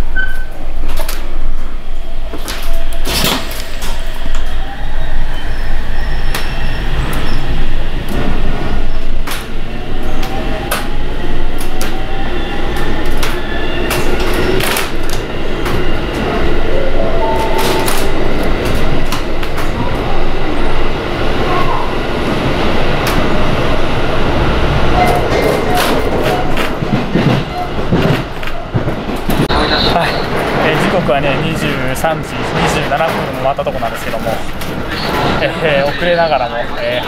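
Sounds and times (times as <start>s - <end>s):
train rumble: 0.0s - 37.0s
train wheel clicks and clacks: 5.8s - 16.6s, 17.4s - 20.1s, 22.3s - 35.7s.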